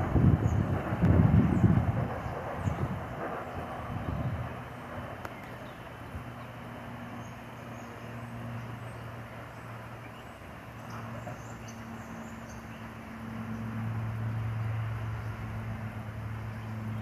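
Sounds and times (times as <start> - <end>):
electric train humming: 0.0 - 17.0.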